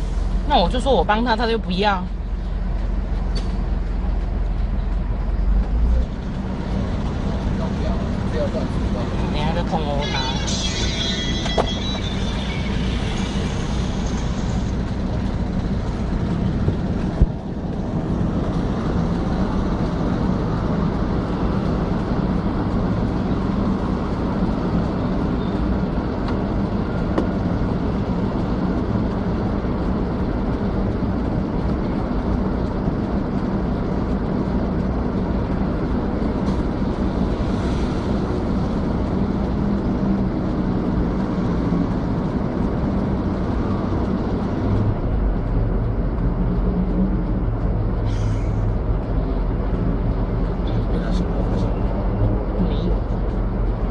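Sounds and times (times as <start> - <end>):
traffic rumble and hiss: 0.0 - 53.9.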